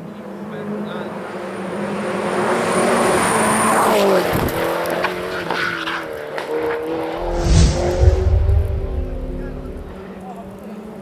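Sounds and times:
race car engine: 7.0s - 10.1s.

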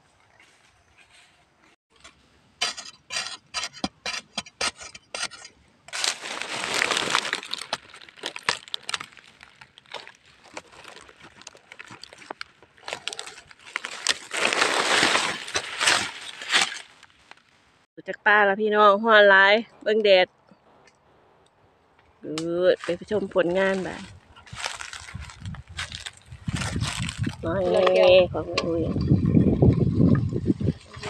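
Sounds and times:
hand scraping dry soil: 1.9s - 17.6s, 22.7s - 31.0s
dry leaves crackling: 5.9s - 17.6s, 22.8s - 27.9s.

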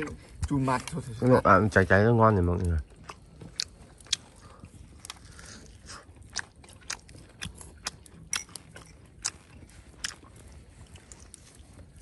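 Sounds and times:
crisp chewing crunches: 2.4s - 12.0s.

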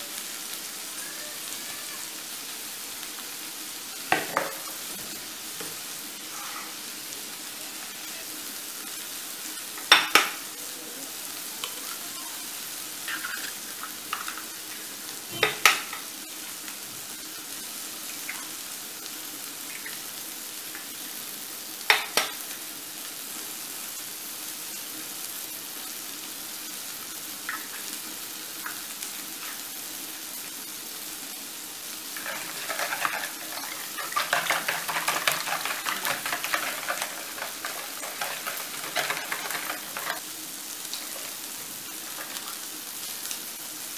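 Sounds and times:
leeks sizzling in a pan: 0.0s - 43.9s
eggs cracking against a bowl: 32.2s - 40.2s
fork beating eggs: 32.2s - 40.2s.

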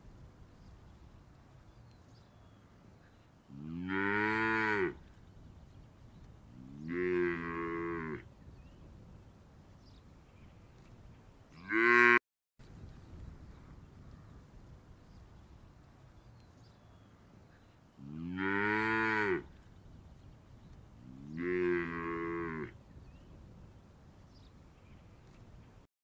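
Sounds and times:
cow mooing: 6.6s - 8.2s, 11.6s - 12.2s, 18.0s - 19.5s, 21.1s - 22.8s.

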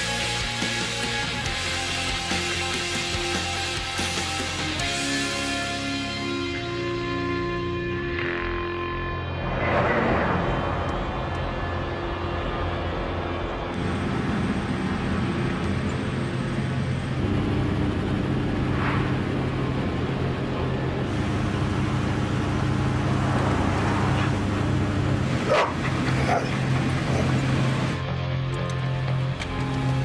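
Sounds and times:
low engine hum: 8.9s - 30.0s
dog barking: 25.4s - 26.7s.

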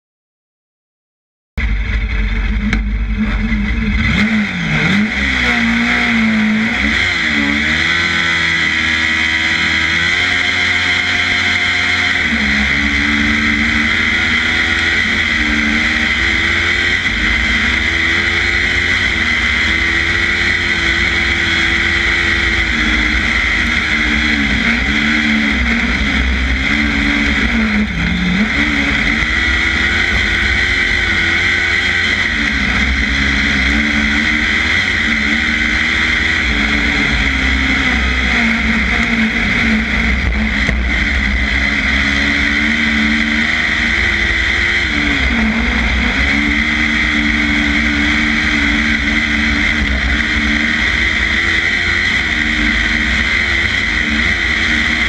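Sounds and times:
kart engine revving: 1.6s - 55.0s.

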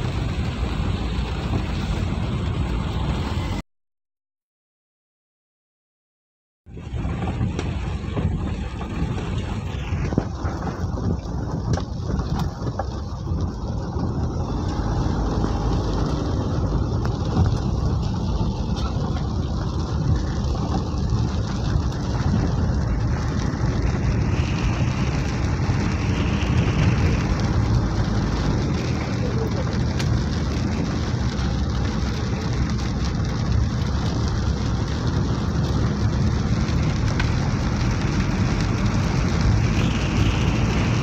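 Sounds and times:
engine and road rumble: 0.0s - 3.6s, 6.6s - 41.0s
rain on windscreen: 0.0s - 3.6s, 6.7s - 41.0s.

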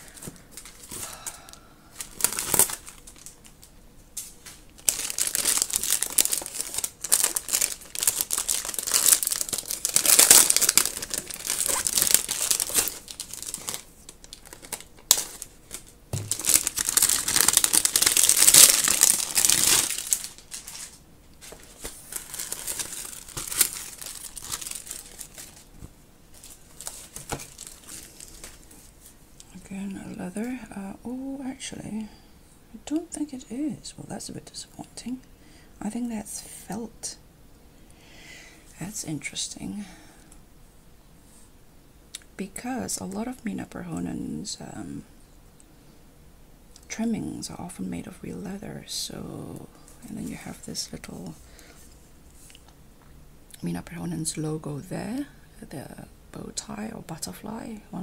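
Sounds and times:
plastic packaging crinkling: 0.0s - 29.2s.

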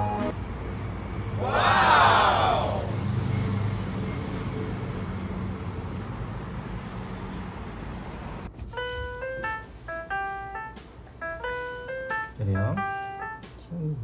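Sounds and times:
road traffic noise: 0.0s - 13.7s.

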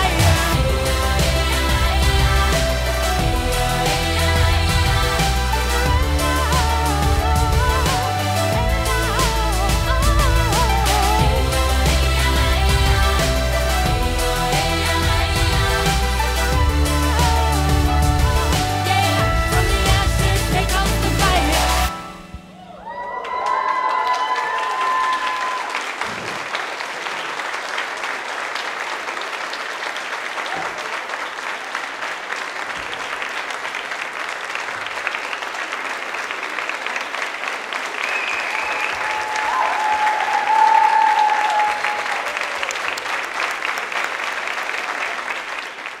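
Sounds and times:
crowd cheering: 21.9s - 46.0s
audience applauding: 22.6s - 46.0s.

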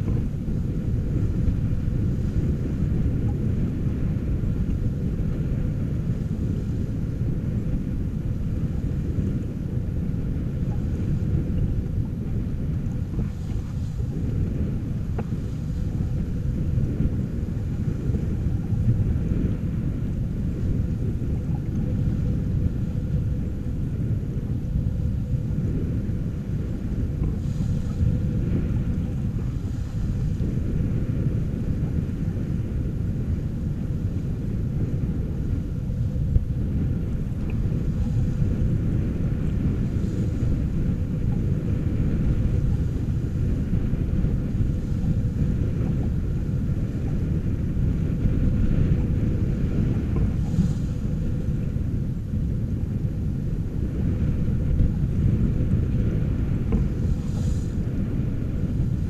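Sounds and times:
water rushing along hull: 0.0s - 59.0s
wind buffeting microphone: 0.0s - 59.0s.

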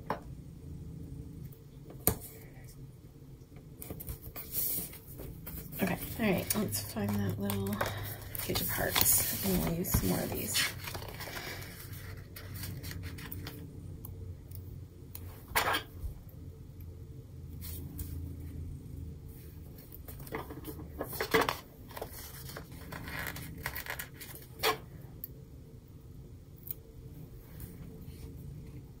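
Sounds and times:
paper rustling: 3.8s - 13.6s, 20.3s - 24.8s.

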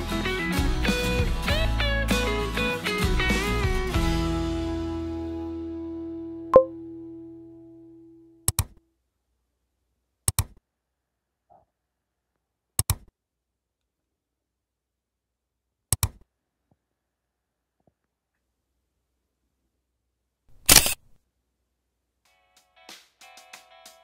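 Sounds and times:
camera shutter clicks: 20.6s - 21.2s.

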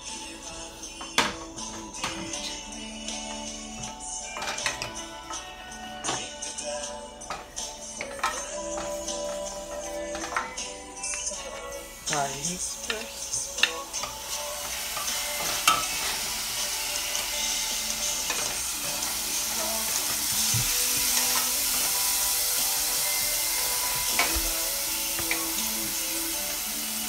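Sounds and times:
garlic sizzling in hot oil: 11.8s - 27.0s.

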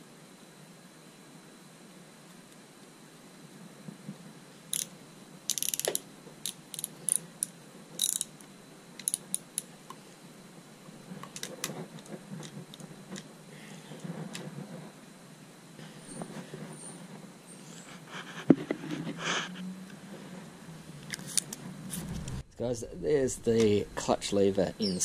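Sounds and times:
ratchet clicking: 4.7s - 4.9s, 5.5s - 8.4s, 9.0s - 9.7s
metal parts rubbing: 8.0s - 8.3s.

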